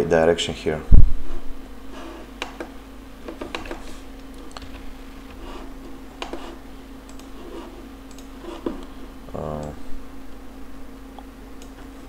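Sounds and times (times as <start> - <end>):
steady low hum: 0.0 - 12.0
computer mouse clicks: 3.3 - 4.8, 6.2 - 7.4, 8.0 - 8.9.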